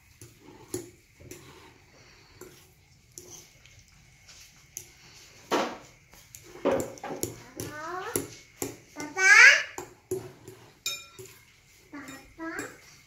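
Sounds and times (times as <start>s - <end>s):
fork clinking on glass bowl: 10.8s - 11.4s.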